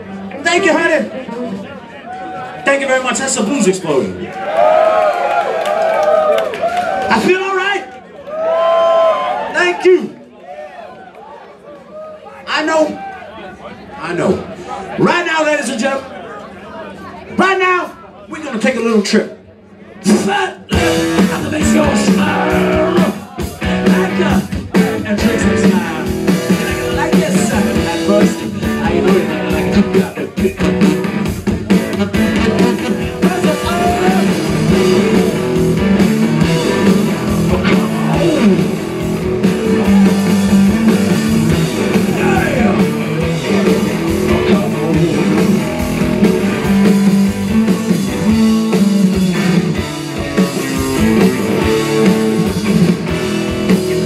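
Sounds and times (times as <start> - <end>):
drum kit: 20.1 - 54.0
electric guitars: 20.7 - 54.0.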